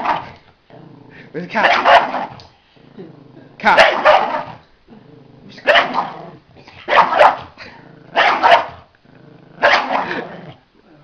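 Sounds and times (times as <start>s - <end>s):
small dog barking: 1.6s - 2.3s, 3.8s - 4.6s, 5.6s - 6.1s, 6.9s - 7.5s, 8.2s - 8.8s, 9.6s - 10.2s.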